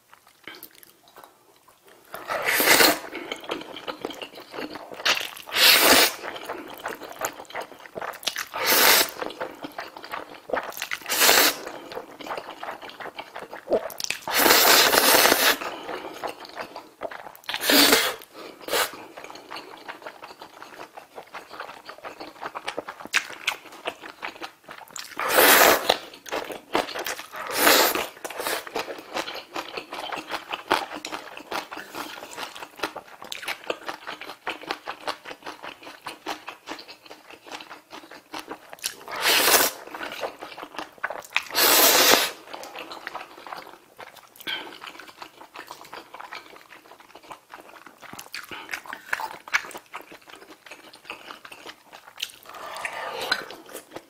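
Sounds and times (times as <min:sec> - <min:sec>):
wet chewing and smacking: 0:00.1 - 0:17.6, 0:18.2 - 0:41.6, 0:42.3 - 0:54.0
noodle slurping: 0:02.2 - 0:19.2, 0:25.1 - 0:26.1, 0:26.9 - 0:28.9, 0:39.0 - 0:40.4, 0:41.5 - 0:43.1, 0:52.3 - 0:54.0.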